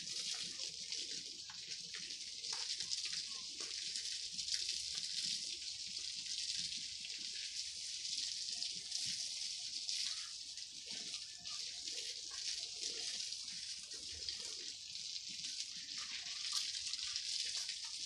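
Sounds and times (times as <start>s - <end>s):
garden hose spraying water: 0.0s - 18.0s
small water splashes: 0.0s - 18.0s.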